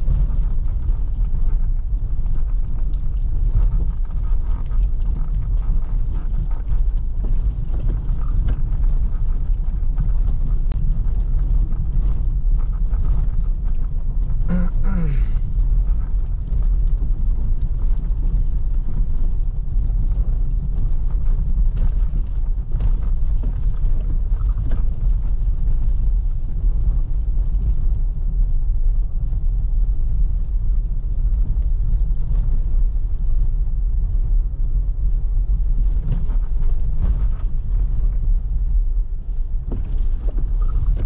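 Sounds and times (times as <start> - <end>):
car road and engine rumble: 0.0 - 41.0.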